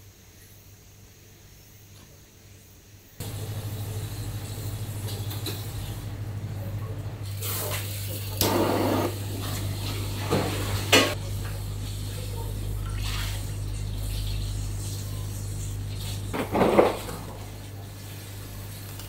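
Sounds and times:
low hum: 3.2 - 7.4
dishes and pots clanking: 16.3 - 17.4.

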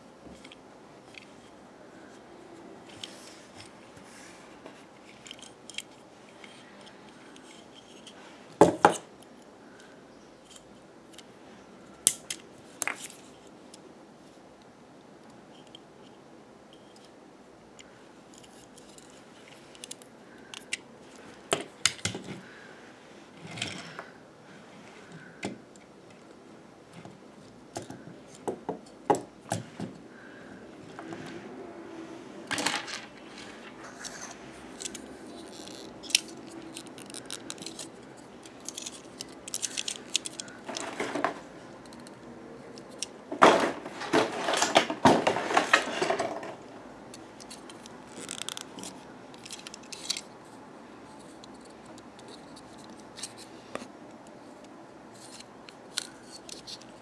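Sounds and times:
plastic toy pieces clicking: 34.0 - 41.2, 47.4 - 50.3.

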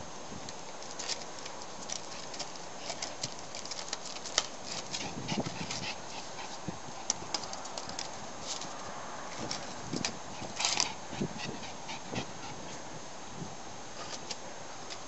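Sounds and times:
dogs making low sounds: 4.6 - 7.8, 10.3 - 12.9.

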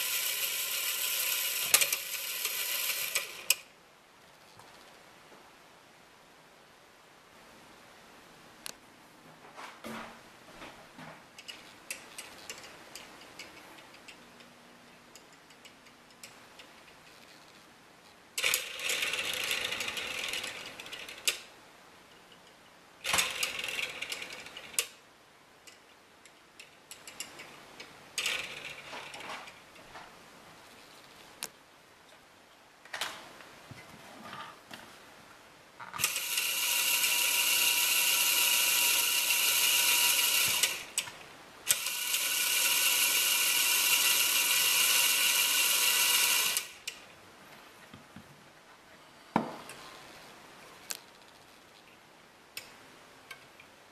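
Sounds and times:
small electric motor whine: 36.0 - 40.8, 41.7 - 46.7.

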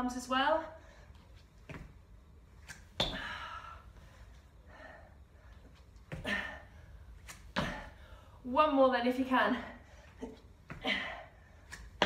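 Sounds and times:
woman breathing hard: 3.0 - 8.4, 9.7 - 11.8
thumps on exercise mat: 7.5 - 7.8.

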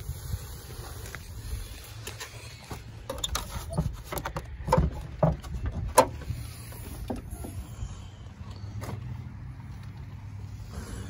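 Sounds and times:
car hood latch clicks and clunks: 3.1 - 6.2.

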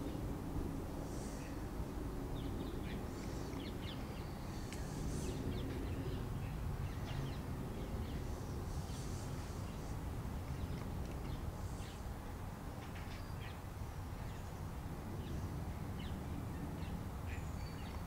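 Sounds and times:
small birds chirping: 2.3 - 12.2, 12.8 - 18.0.

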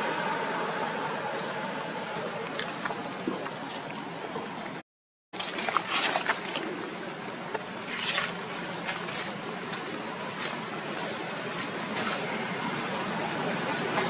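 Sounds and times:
steady outdoor background hiss: 5.5 - 14.0.

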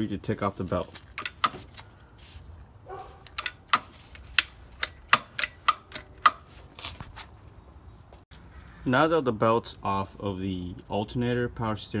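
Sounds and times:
drive belt clicks and slaps: 3.2 - 6.5.

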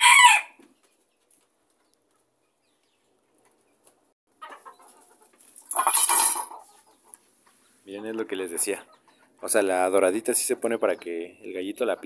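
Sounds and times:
rooster crowing: 0.0 - 0.6
hen clucking: 0.6 - 12.0.

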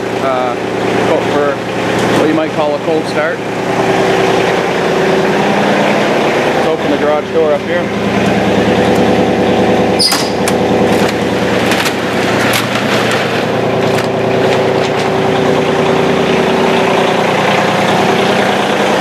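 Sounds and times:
diesel engine idling: 0.0 - 19.0
garage door clattering: 8.0 - 15.8.

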